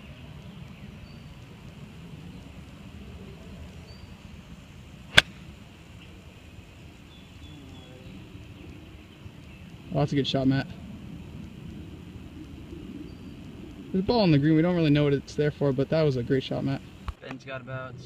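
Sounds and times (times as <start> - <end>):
golf club striking ball: 5.1 - 5.5.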